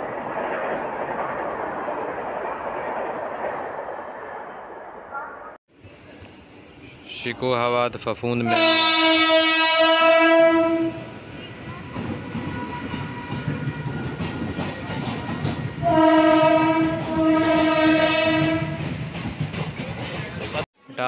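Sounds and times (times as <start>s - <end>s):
train wheels rumbling on track: 5.8s - 20.7s
train horn: 8.4s - 11.1s, 15.8s - 18.8s.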